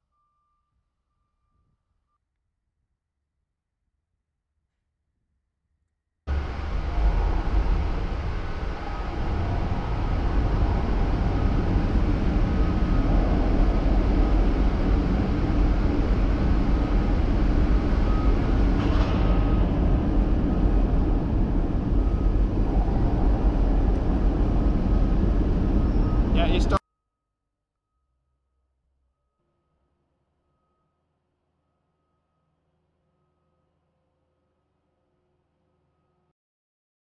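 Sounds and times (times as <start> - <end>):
crane rumbling on rails: 6.3 - 26.8
faint whine: 6.3 - 26.8.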